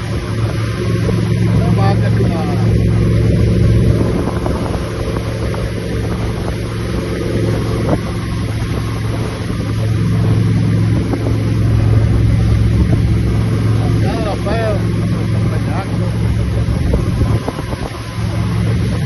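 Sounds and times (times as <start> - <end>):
motorboat engine running: 0.0 - 19.0
wind noise on microphone: 0.0 - 19.0.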